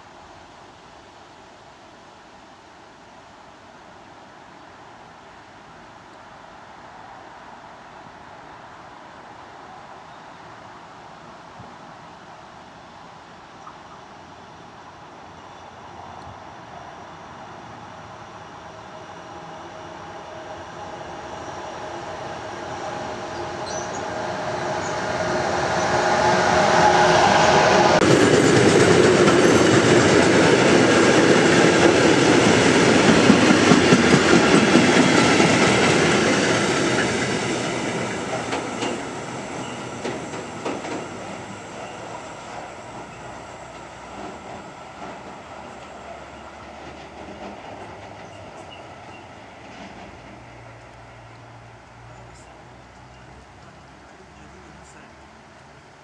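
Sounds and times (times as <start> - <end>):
electric locomotive humming: 13.9 - 56.0
wagons clacking over rails: 27.5 - 51.4.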